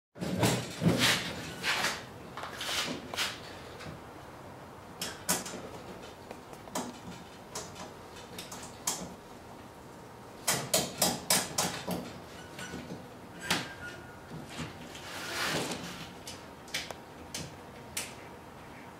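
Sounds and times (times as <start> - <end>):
clicks and knocks of handling: 5.0 - 9.2.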